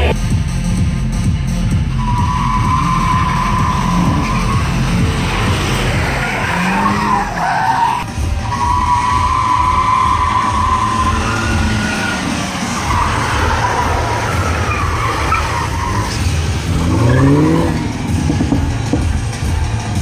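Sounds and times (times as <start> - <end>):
car engine revving: 0.0 - 20.0
tyres squealing on tarmac: 2.0 - 17.8.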